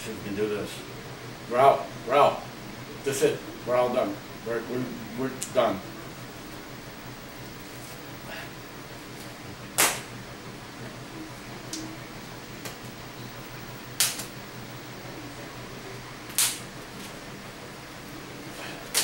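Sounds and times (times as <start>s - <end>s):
stretched latex snapping: 9.8s - 10.1s, 16.3s - 16.6s.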